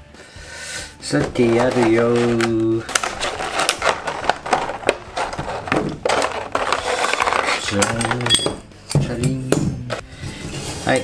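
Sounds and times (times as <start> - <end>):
plastic packaging crackling: 1.2 - 8.0.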